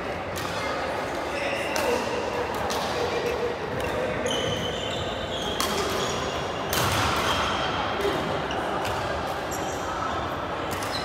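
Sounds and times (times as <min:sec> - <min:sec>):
racket hitting shuttlecock: 0:05.6 - 0:06.0, 0:06.7 - 0:08.2.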